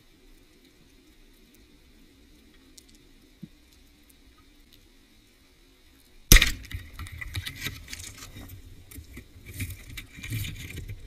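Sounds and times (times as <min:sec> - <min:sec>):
speargun shot crack: 0:06.3 - 0:07.0
underwater clicking and rattling: 0:06.5 - 0:11.0.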